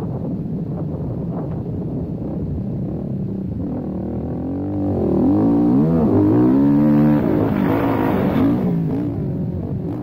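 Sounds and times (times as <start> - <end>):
quad engine revving: 4.4 - 9.2.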